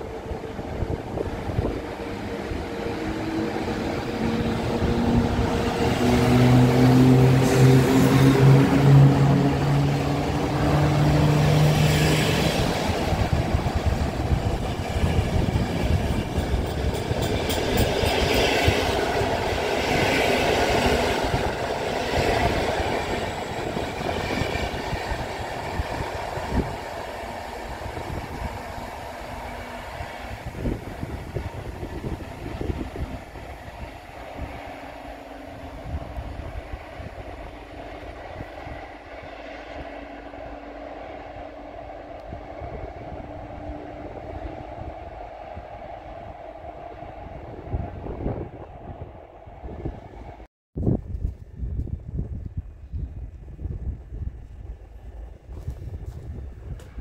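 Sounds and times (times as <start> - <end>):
train passing: 0.0 - 50.5.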